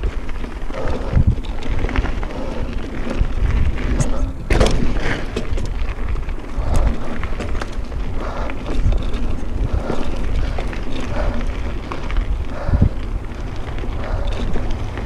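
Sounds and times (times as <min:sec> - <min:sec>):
bike clicks and rattles: 0:00.0 - 0:15.0
bike tyre noise: 0:00.0 - 0:15.0
wind rumbling on microphone: 0:00.0 - 0:15.0.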